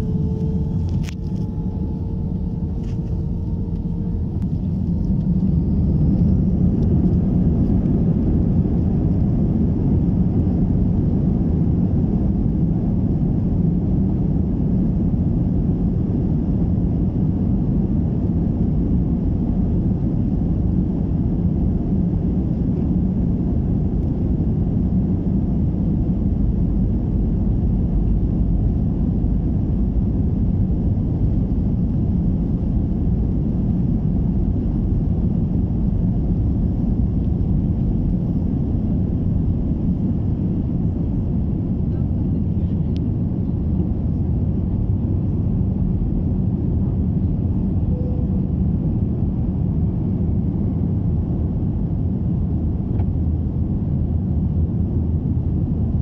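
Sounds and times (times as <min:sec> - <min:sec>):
jet engines roaring: 0:00.0 - 0:11.2.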